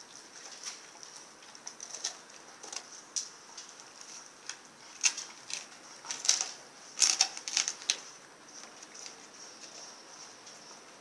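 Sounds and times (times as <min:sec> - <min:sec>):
dog crunching frozen meat and bone: 0:00.4 - 0:09.3.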